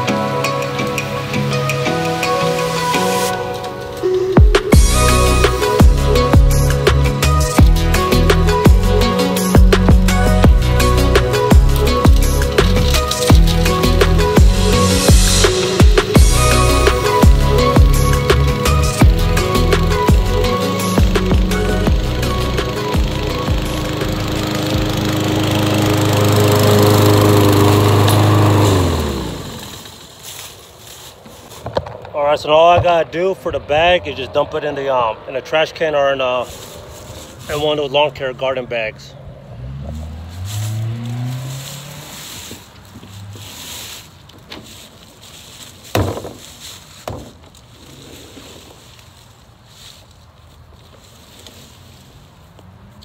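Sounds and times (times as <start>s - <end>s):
lawn mower engine running: 0.0s - 31.0s
low hum rising in pitch: 4.7s - 30.0s
trash can lid banging: 46.0s - 46.4s.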